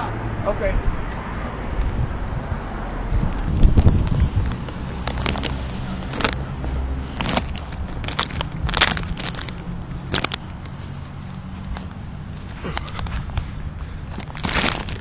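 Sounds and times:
vehicle engine humming: 0.0s - 15.0s
sharp crackles and clicks: 3.5s - 6.4s, 7.2s - 10.7s, 14.1s - 15.0s.

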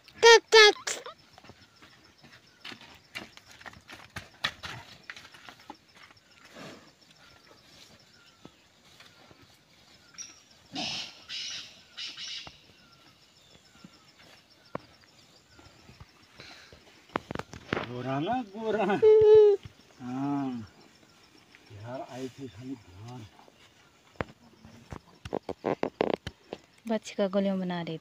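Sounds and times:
cow hooves knocking and scuffing: 1.2s - 10.7s, 11.8s - 18.2s, 22.3s - 26.8s
small bird chirping: 7.0s - 18.6s, 19.2s - 26.9s.

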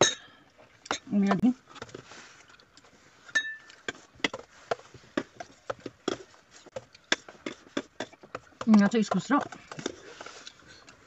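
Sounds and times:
metal spoon clinking on dish: 3.3s - 3.8s
small eating clicks and taps: 3.6s - 11.0s.

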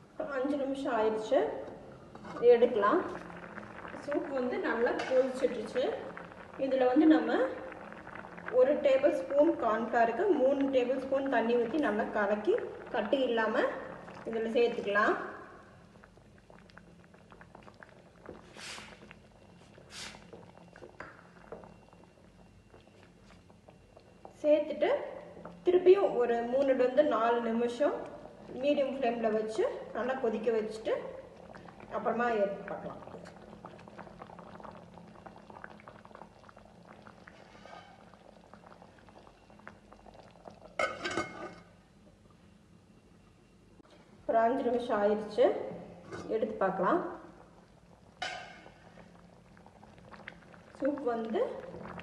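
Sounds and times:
soup simmering with popping: 0.5s - 43.9s, 45.7s - 52.0s
spatula scraping pan: 37.3s - 38.0s, 48.2s - 48.7s
metal lid clattering onto pan: 48.2s - 48.7s.

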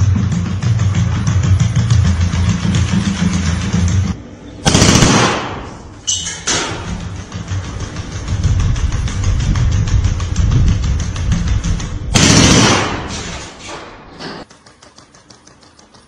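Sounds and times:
vehicle engine running: 0.0s - 6.0s, 6.8s - 13.2s
rifle fire bangs: 4.6s - 5.9s, 12.1s - 13.5s.

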